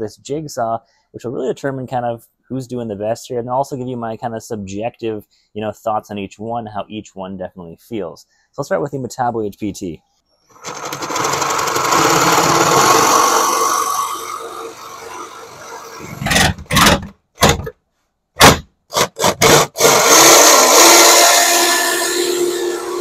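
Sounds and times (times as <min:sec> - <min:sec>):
jigsaw cutting wood: 0:10.5 - 0:16.9, 0:18.4 - 0:23.0.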